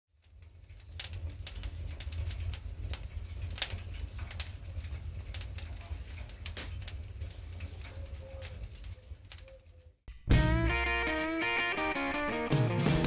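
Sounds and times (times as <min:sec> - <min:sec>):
fire crackling and popping: 0:00.1 - 0:10.0
fire roaring: 0:00.1 - 0:10.0.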